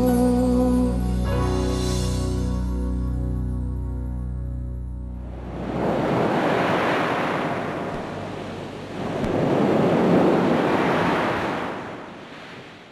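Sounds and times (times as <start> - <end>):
ocean surf breaking on beach: 5.3 - 12.9.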